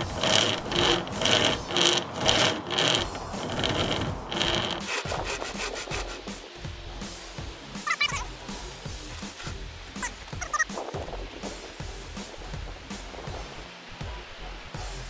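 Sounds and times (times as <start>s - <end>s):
chainsaw chain rasping through wood: 0.0s - 6.4s, 9.1s - 9.6s.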